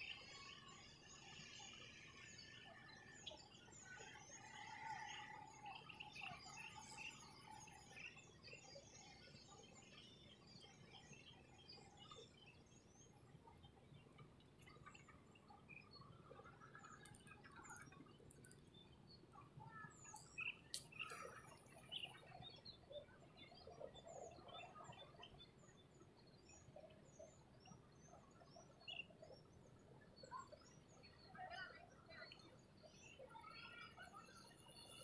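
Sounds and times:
faint bird chirps and calls: 0.0s - 35.0s.

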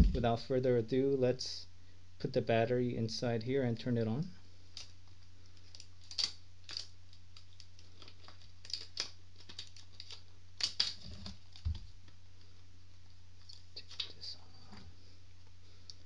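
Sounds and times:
dull bump: 0.0s - 0.3s.

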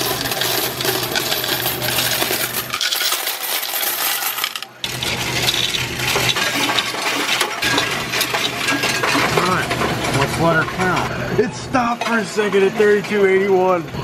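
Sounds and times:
coins clattering on metal tray: 0.0s - 11.1s
low machine hum: 0.0s - 14.0s.

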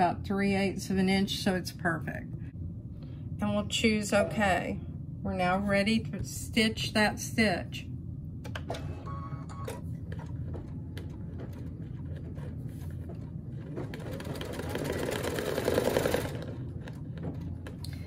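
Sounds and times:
embroidery machine stitching: 13.2s - 17.0s.

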